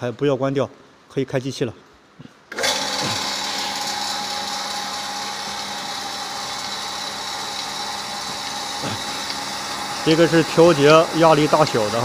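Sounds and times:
vacuum pump humming and whining: 0:02.5 - 0:12.0.

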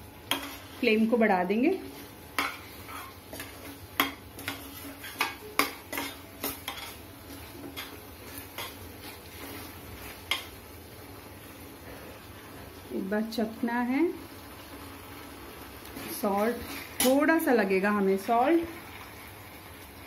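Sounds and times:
spoon stirring in steel pan: 0:00.2 - 0:01.1, 0:01.7 - 0:10.8, 0:16.0 - 0:17.5.

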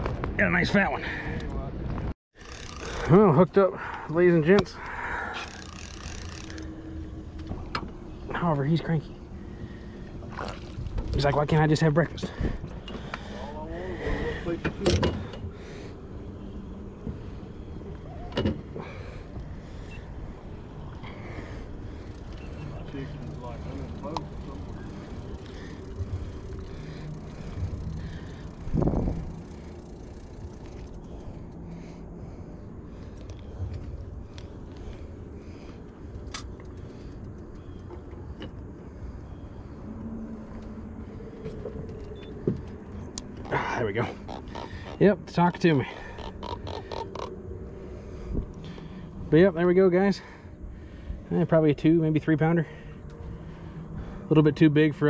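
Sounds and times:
steady low rumble: 0:03.1 - 0:46.1, 0:46.8 - 0:55.0.

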